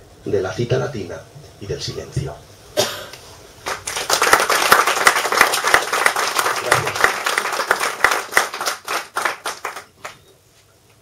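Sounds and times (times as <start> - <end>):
audience clapping: 3.6 - 10.2.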